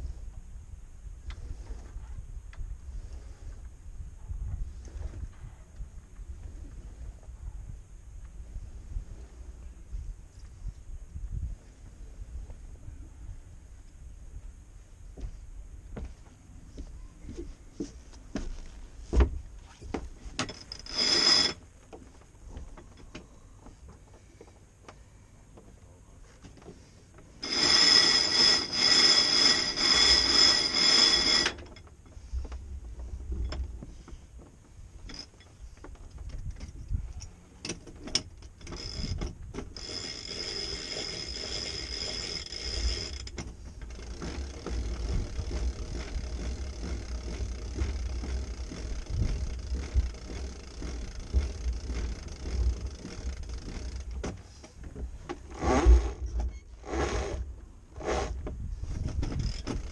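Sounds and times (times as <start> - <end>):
wind buffeting microphone: 0.0 - 16.0, 42.8 - 54.2, 58.3 - 59.9
winch pawls ratcheting: 20.4 - 21.7, 27.3 - 32.0, 35.0 - 35.8, 36.5 - 54.4, 59.0 - 59.9.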